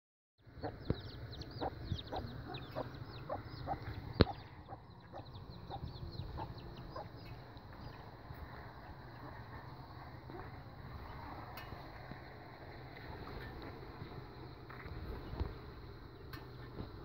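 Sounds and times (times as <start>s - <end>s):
steady low rumble: 0.4s - 17.0s
chickens clucking: 0.5s - 10.7s.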